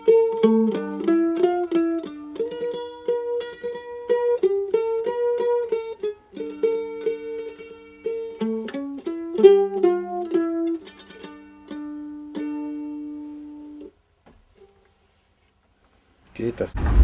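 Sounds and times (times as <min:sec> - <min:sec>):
mandolin tremolo picking: 0:00.0 - 0:13.9.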